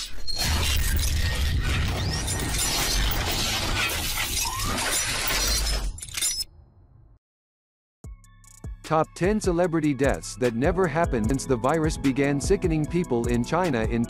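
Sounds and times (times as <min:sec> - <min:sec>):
metallic mechanical clatter: 0:00.3 - 0:06.5
glass shattering: 0:00.4 - 0:06.5.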